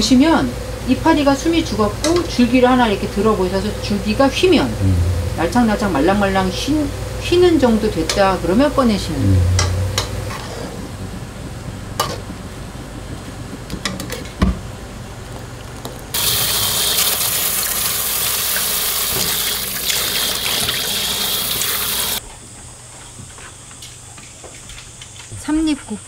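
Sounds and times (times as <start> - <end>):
water rushing into steel bowl: 16.2 - 22.2.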